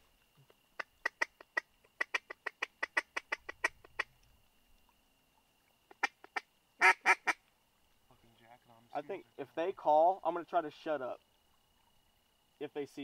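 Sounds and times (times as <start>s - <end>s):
duck call quacks: 6.0s - 7.4s.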